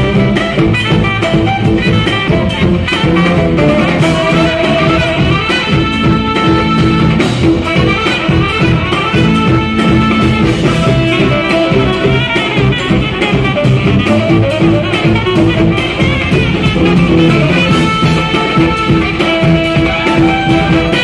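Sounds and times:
jazz fusion band playing: 0.0s - 21.0s
saxophones and trumpet: 0.0s - 21.0s.

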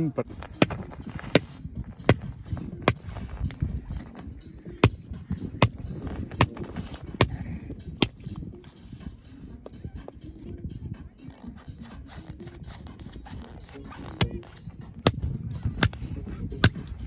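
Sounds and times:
hatchet chopping firewood: 0.4s - 3.1s, 4.8s - 7.4s, 8.0s - 8.3s, 14.1s - 16.0s, 16.6s - 16.9s.

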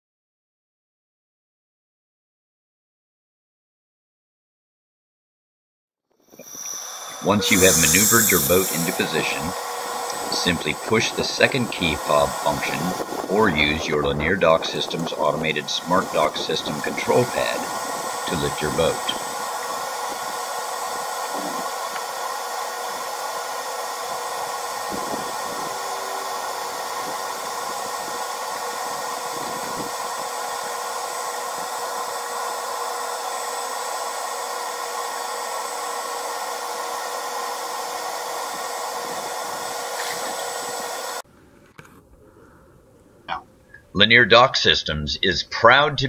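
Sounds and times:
electric lift motor running: 6.4s - 41.2s.

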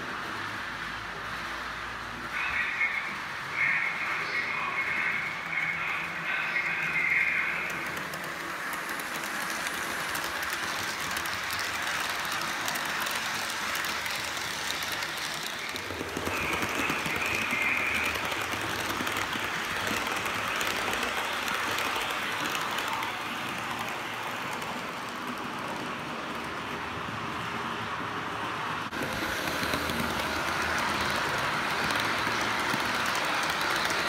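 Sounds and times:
model train wheels clicking: 4.8s - 26.8s, 28.9s - 34.0s.

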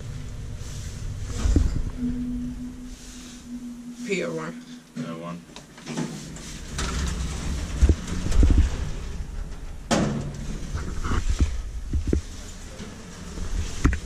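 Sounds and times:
elevator cab rumbling: 0.0s - 4.5s, 6.4s - 14.0s
elevator doors sliding open: 5.8s - 11.0s, 12.3s - 14.0s.

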